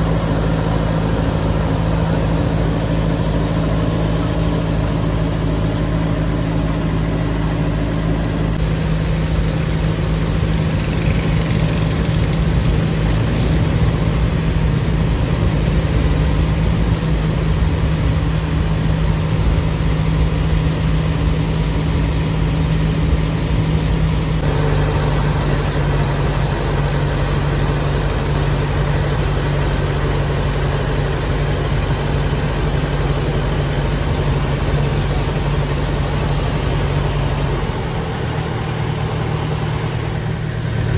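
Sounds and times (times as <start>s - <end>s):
engine running steadily: 0.0s - 40.9s.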